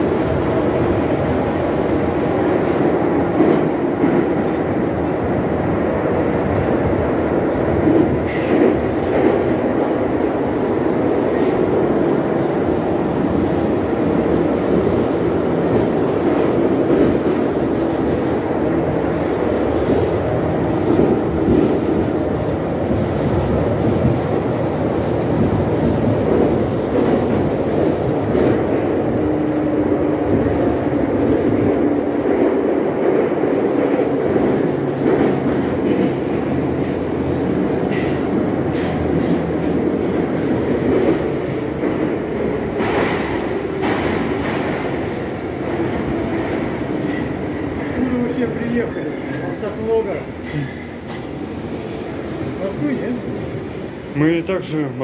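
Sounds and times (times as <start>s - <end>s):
metro wheels rumbling on rail: 0.0s - 55.0s.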